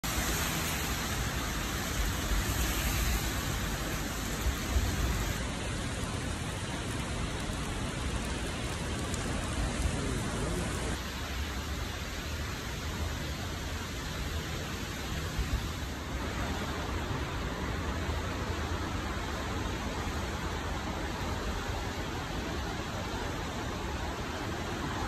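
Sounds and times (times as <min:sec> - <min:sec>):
heavy rain on pavement: 0:00.0 - 0:25.0.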